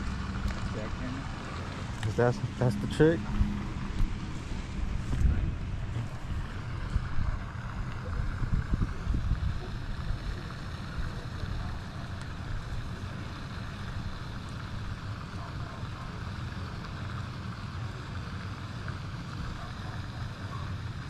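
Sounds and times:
wind buffeting microphone: 3.2s - 11.8s.

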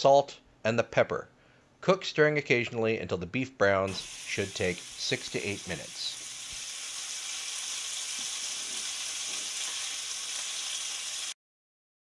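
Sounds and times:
meat sizzling in hot oil: 3.9s - 11.4s.

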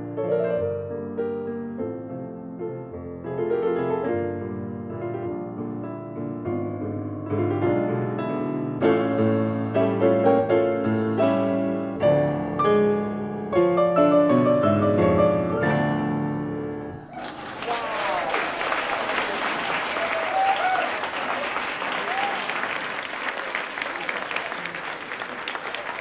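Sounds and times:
piano classical piece: 0.0s - 17.2s.

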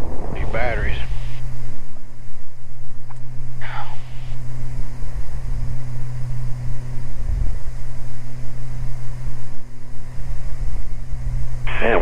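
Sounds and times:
aircraft engines droning in cabin: 0.0s - 12.0s.

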